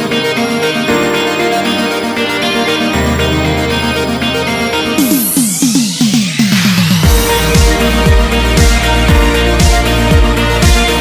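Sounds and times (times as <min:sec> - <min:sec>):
sustained chords: 0:00.0 - 0:11.0
deep kick drum: 0:07.0 - 0:11.0.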